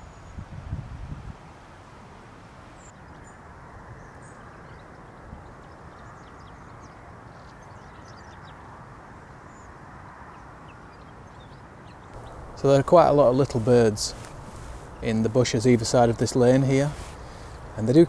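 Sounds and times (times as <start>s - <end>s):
low rush of wind: 0.0s - 18.0s
small birds chirping: 10.7s - 18.0s.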